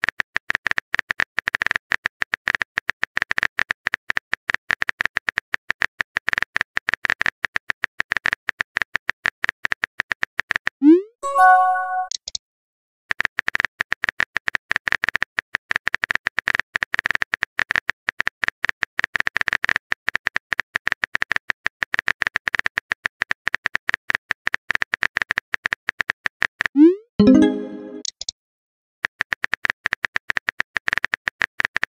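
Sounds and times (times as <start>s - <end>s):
message tone: 11.2s - 12.1s, 26.8s - 28.1s.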